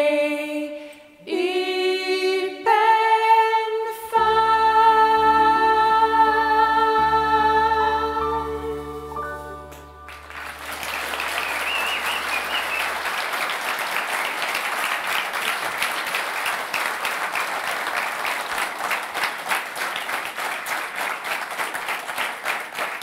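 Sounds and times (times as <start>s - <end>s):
audience applauding: 10.1s - 23.0s.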